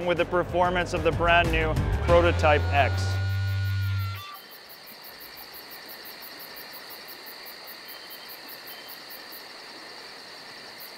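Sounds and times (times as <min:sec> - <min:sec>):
insects chirping: 0:02.4 - 0:10.9
high-pitched insect trill: 0:02.6 - 0:10.9.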